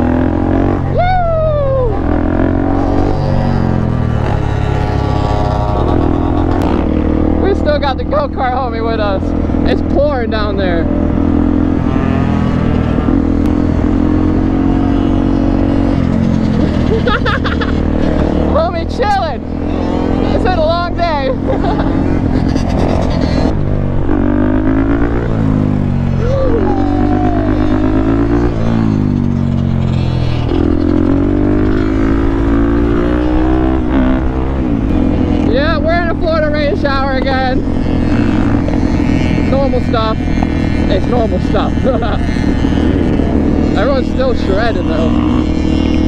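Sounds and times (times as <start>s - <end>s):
motorcycle engines running: 0.0s - 46.0s
wind on microphone: 37.6s - 46.0s.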